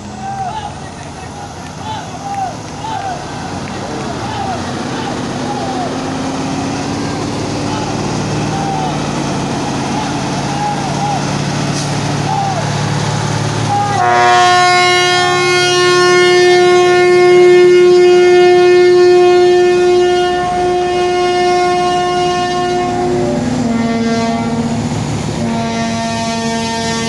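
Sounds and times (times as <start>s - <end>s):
truck air horn blast: 13.6s - 27.0s.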